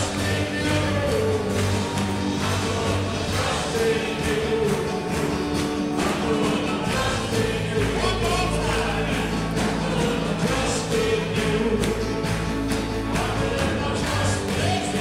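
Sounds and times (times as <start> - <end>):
group of voices singing: 0.0 - 15.0.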